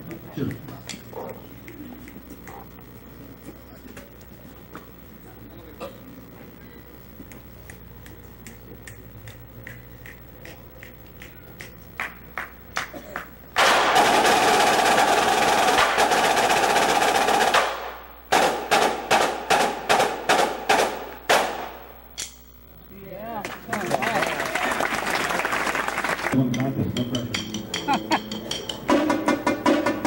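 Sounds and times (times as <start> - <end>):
snare drum line playing: 13.6 - 21.9, 25.4 - 30.0.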